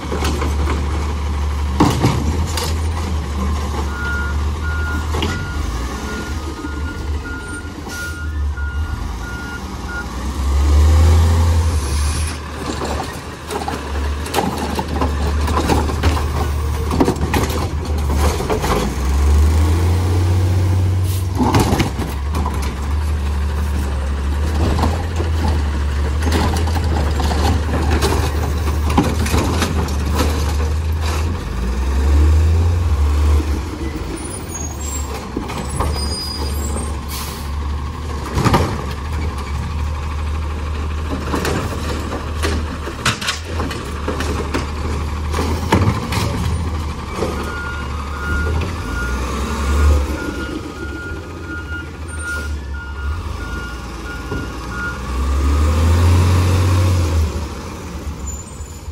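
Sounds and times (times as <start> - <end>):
diesel engine running: 0.0 - 58.8
reversing alarm beeping: 3.9 - 10.4, 47.4 - 55.1.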